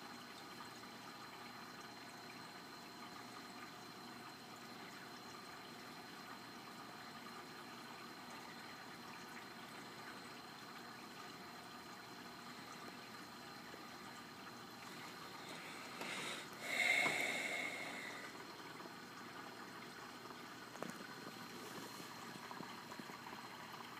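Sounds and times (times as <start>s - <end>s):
aquarium water washing: 0.0s - 23.9s.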